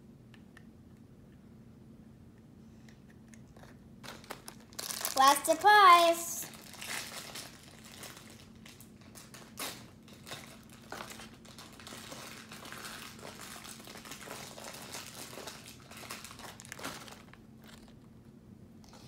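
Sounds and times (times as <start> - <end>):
plastic wrapper crinkling: 3.6 - 18.1.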